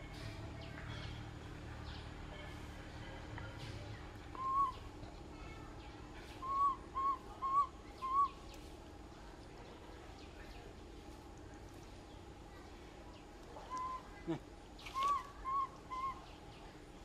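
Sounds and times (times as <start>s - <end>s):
faint forest background: 0.0s - 17.0s
whistle-like animal calls: 15.0s - 16.2s.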